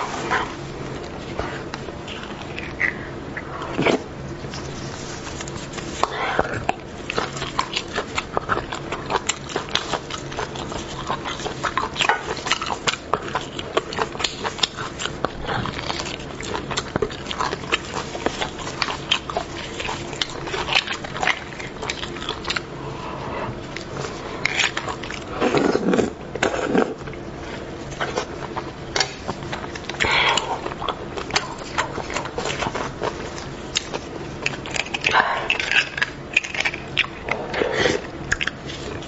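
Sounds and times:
wet mouth eating sounds: 0:00.0 - 0:39.0.

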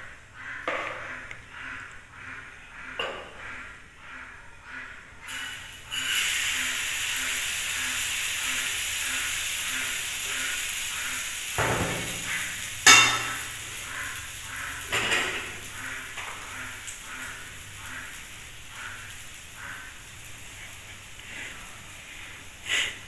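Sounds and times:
batter sizzling in frying pan: 0:05.3 - 0:23.0
metal ladle knocking on cookware: 0:12.9 - 0:13.4.

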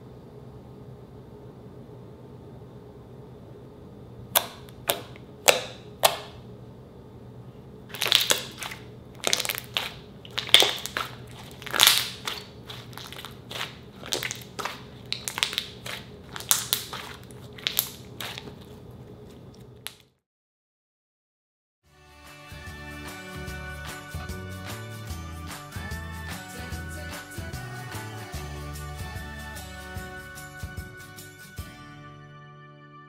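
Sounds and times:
slime squishing with wet pops: 0:04.4 - 0:06.4, 0:07.9 - 0:20.1.

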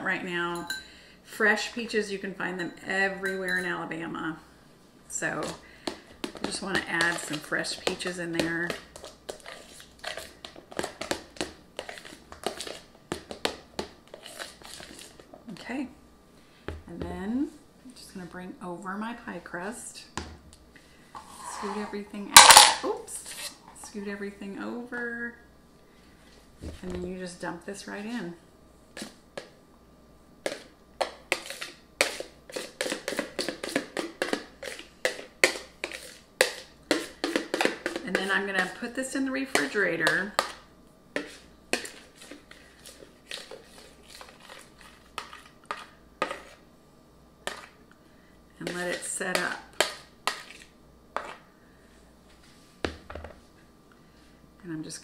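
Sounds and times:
spatula scraping plastic bowl: 0:06.2 - 0:11.2, 0:11.8 - 0:12.8, 0:14.1 - 0:15.2, 0:21.2 - 0:22.0, 0:23.2 - 0:23.6, 0:31.3 - 0:38.8, 0:41.2 - 0:46.6, 0:48.6 - 0:51.4.

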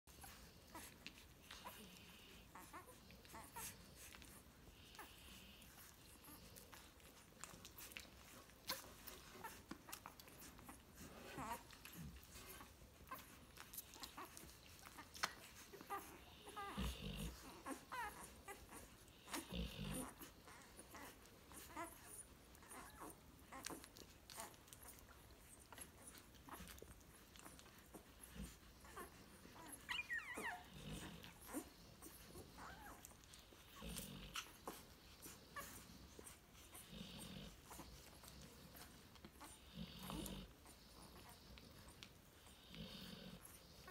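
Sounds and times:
puppies suckling clicks and smacks: 0:00.1 - 0:43.9
puppy low grunts: 0:15.2 - 0:21.9, 0:36.7 - 0:41.4
puppy high squeaks: 0:29.6 - 0:30.6.

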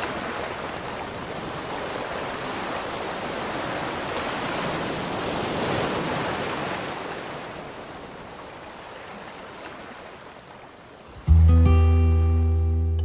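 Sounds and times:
lake waves lapping on shore: 0:00.0 - 0:11.3
plucked acoustic guitar note: 0:11.2 - 0:13.0.

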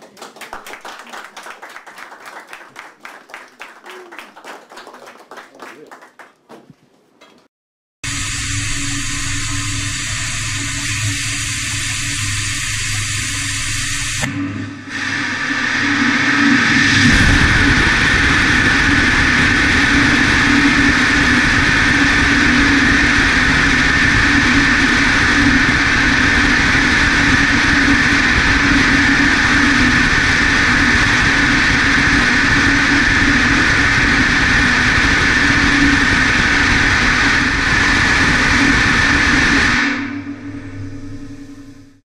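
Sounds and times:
rocket engine roaring: 0:08.0 - 0:42.0.

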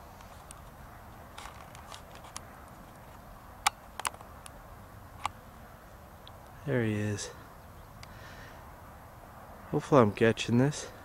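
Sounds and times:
faint background hiss: 0:00.0 - 0:11.0.

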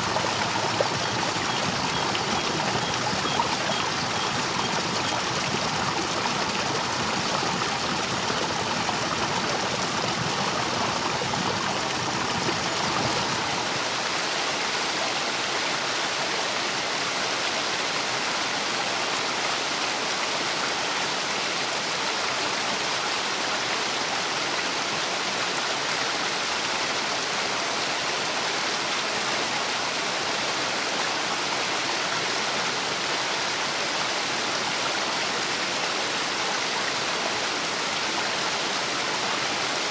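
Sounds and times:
water roaring over weir: 0:00.0 - 0:14.1.

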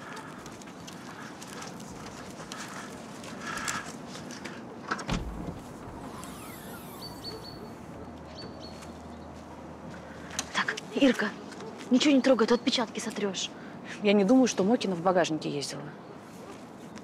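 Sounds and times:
tailgate latch click and thump: 0:05.0 - 0:06.2
faint whirring of tailgate lifting: 0:05.1 - 0:07.5.

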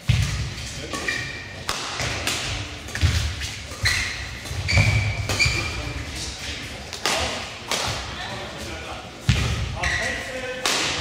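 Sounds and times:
rackets hitting shuttlecock: 0:00.0 - 0:08.2, 0:10.6 - 0:11.0
shoes squeaking: 0:00.8 - 0:01.8, 0:02.4 - 0:06.9, 0:08.2 - 0:10.4.

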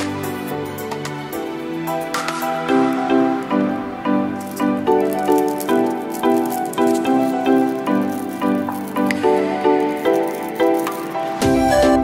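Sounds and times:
pop instrumental with repeated chords: 0:11.4 - 0:12.0.

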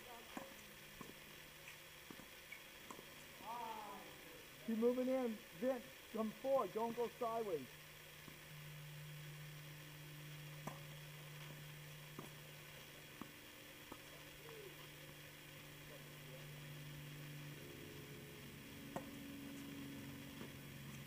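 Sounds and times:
steady low hum: 0:00.0 - 0:21.0
racket hitting tennis ball: 0:12.2 - 0:12.4, 0:18.9 - 0:19.1.

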